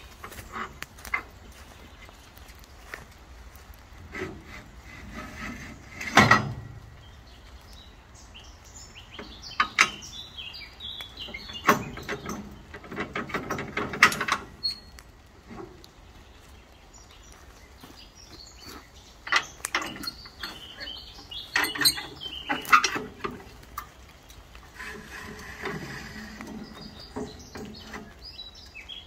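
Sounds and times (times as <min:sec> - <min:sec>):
birds chirping: 0:00.0 - 0:29.0
metal clanks and rattles: 0:04.0 - 0:07.1, 0:09.2 - 0:10.2, 0:11.2 - 0:15.9, 0:19.2 - 0:28.9.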